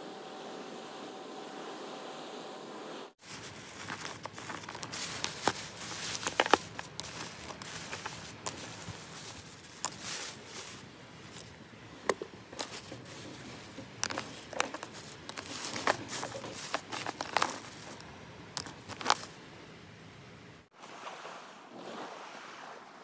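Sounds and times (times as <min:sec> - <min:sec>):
plastic bag crinkling: 0:03.2 - 0:19.4.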